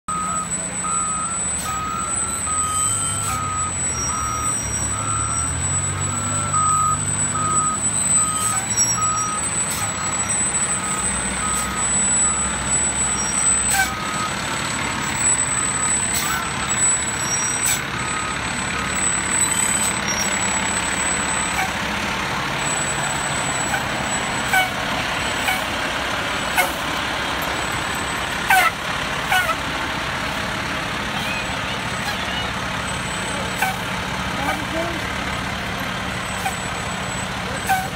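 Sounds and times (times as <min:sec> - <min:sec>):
back-up alarm beeping: 0:00.1 - 0:25.7
diesel engine running: 0:00.1 - 0:37.9.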